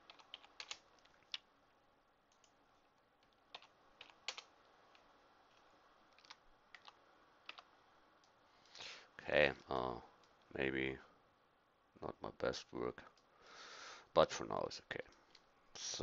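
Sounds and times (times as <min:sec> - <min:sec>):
keyboard keys clicking: 0:00.0 - 0:01.4, 0:03.2 - 0:07.7.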